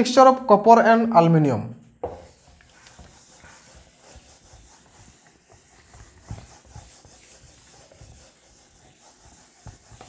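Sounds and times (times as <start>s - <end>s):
duster scrubbing a whiteboard: 2.0s - 10.0s.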